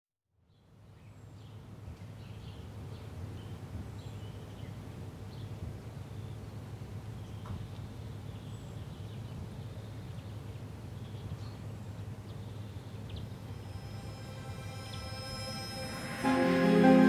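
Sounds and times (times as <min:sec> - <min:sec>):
steady low hum: 0:09.2 - 0:17.0.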